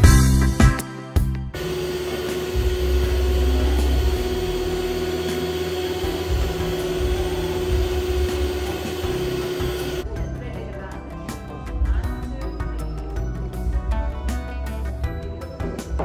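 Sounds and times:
stand mixer humming: 0:01.6 - 0:10.0.

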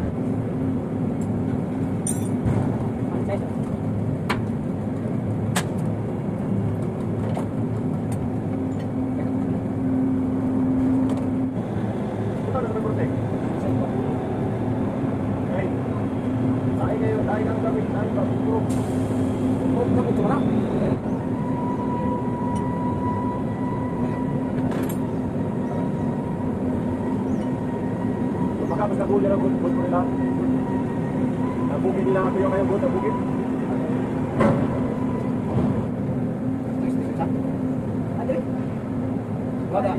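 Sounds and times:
heavy machinery drone: 0:08.2 - 0:39.9.

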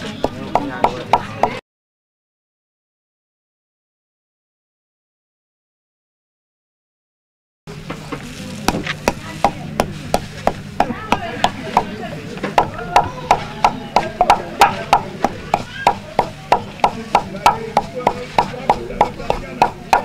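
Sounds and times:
pestle pounding in wooden mortar: 0:00.0 - 0:01.6, 0:08.6 - 0:20.0.

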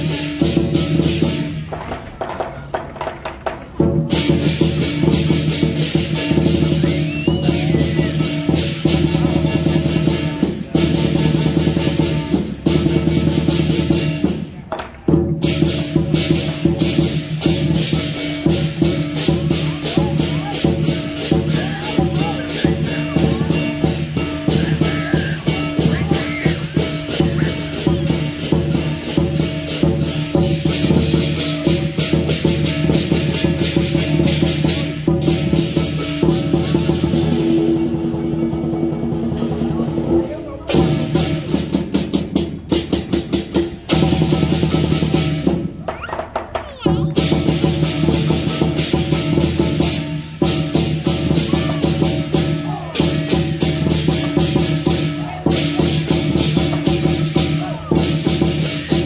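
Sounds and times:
drum beating fast rhythm: 0:00.0 - 0:59.0
crashing cymbals: 0:04.1 - 0:14.4, 0:15.4 - 0:39.7, 0:47.2 - 0:59.0.

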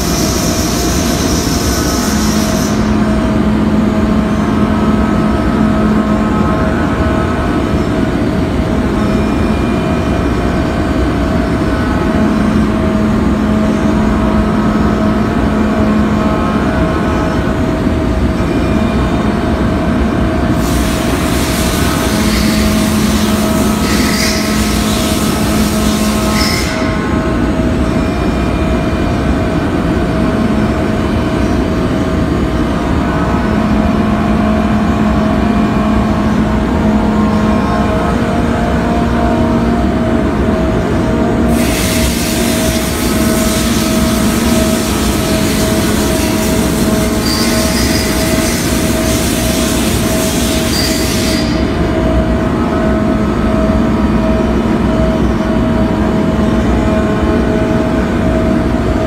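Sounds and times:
loud hiss: 0:00.0 - 0:03.0, 0:20.6 - 0:26.9, 0:41.5 - 0:51.8
milling machine whine: 0:00.0 - 0:59.0.

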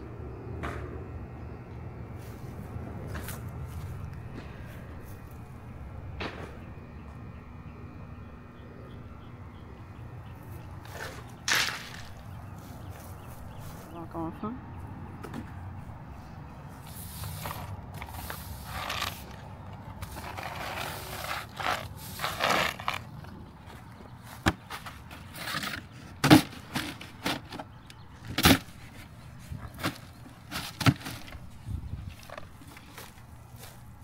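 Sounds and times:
push broom sweeping concrete: 0:16.8 - 0:19.4, 0:20.0 - 0:23.1.

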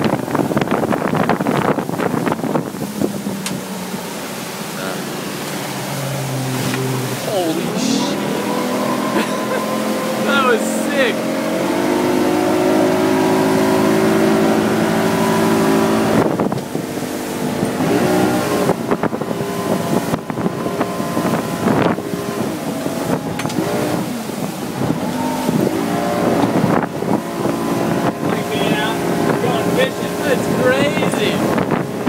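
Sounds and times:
outboard motor running: 0:00.0 - 0:32.0.

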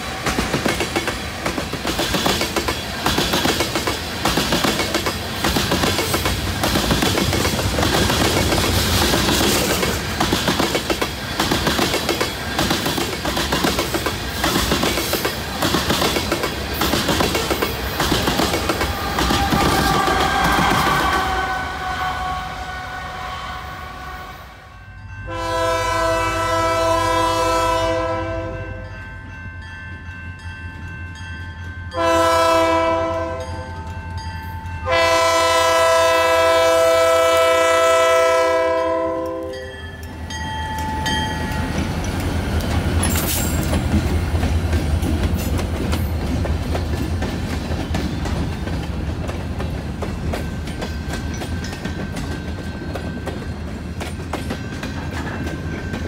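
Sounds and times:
wheels clacking over rail joints: 0:00.0 - 0:21.4, 0:40.0 - 0:56.0
train passing low rumble: 0:00.0 - 0:56.0
locomotive air horn blasts: 0:18.9 - 0:24.7, 0:25.3 - 0:28.8, 0:32.0 - 0:33.6, 0:34.8 - 0:39.7.

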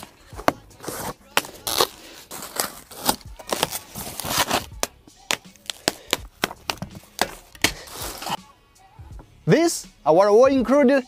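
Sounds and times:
plastic wrap rustling: 0:00.8 - 0:08.4.

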